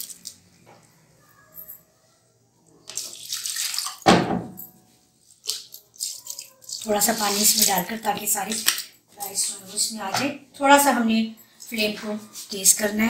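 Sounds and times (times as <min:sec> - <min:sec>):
water running: 0:02.8 - 0:04.1, 0:05.3 - 0:10.3.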